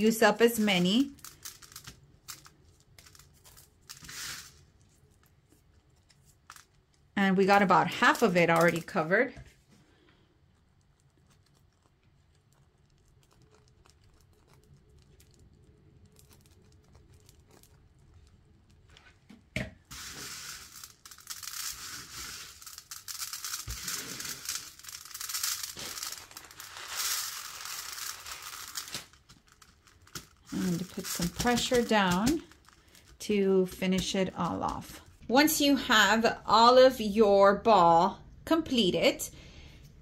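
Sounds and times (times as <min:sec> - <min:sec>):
sprinkles rattling on metal sheet: 0:00.0 - 0:04.7, 0:07.4 - 0:09.1, 0:19.9 - 0:33.2.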